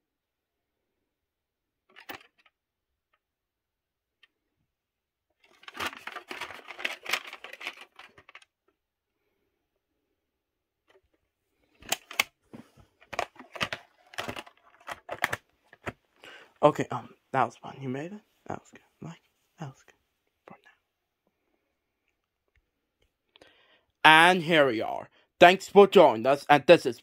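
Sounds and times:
plastic case scraping and rustling: 5.4s - 8.5s, 11.7s - 16.0s
plastic case clicks and snaps: 11.8s - 12.4s, 13.0s - 16.0s.

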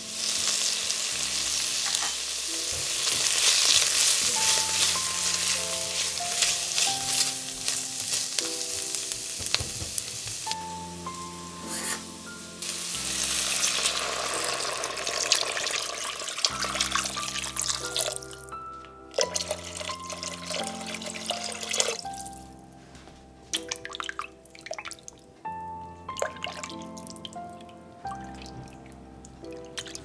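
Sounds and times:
water pouring into a pot: 0.0s - 10.6s, 12.6s - 18.4s, 19.2s - 22.5s, 23.6s - 25.1s, 26.2s - 27.4s
soft background music: 0.0s - 30.0s.

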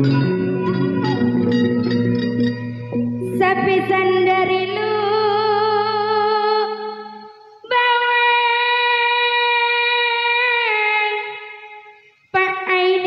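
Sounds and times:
woman singing into a microphone: 3.2s - 13.0s.

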